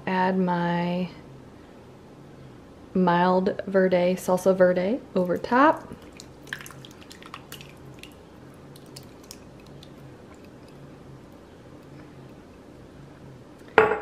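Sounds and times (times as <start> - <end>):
faint low hum: 0.0 - 14.0
thick sauce squelching from a jar: 5.8 - 12.7.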